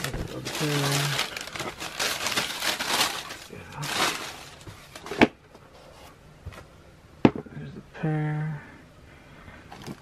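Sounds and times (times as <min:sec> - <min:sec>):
tissue paper rustling and crinkling: 0:00.0 - 0:05.2.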